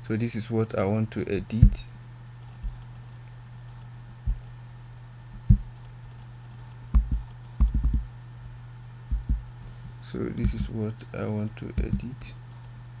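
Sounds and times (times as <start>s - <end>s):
steady low hum: 0.0s - 13.0s
keyboard keystrokes: 5.5s - 8.1s, 10.4s - 10.7s, 11.8s - 12.1s.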